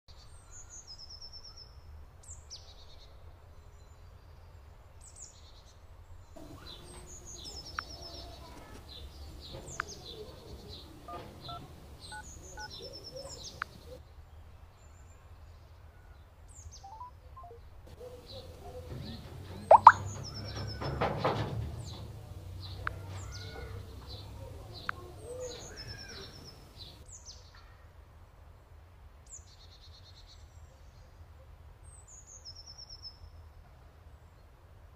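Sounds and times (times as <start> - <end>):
birds singing with trill: 6.4 - 14.0, 18.0 - 27.2
phone keypad beeps: 11.1 - 12.8, 16.9 - 17.6, 19.7 - 20.0.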